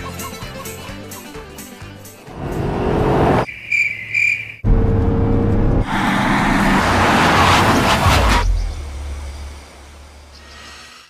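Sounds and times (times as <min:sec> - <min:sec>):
music: 0:00.0 - 0:02.4
road noise: 0:02.2 - 0:11.0
car engine hum: 0:02.3 - 0:03.4, 0:04.6 - 0:07.8.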